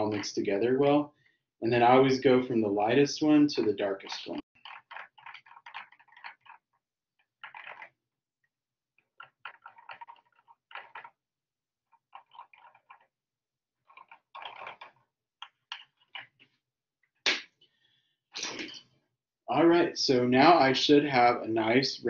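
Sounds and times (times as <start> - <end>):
stick clicking against plastic cups: 4.6 - 6.6, 13.9 - 16.4.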